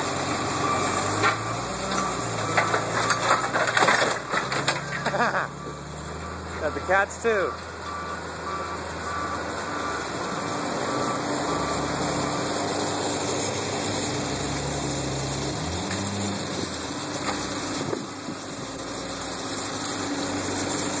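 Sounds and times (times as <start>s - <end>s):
diesel engine running: 0.0s - 21.0s
reversing beeper: 0.4s - 2.4s, 4.9s - 13.6s.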